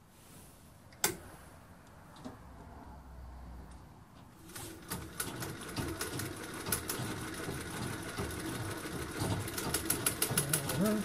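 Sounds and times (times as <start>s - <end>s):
sewing machine stitching: 4.4s - 11.0s.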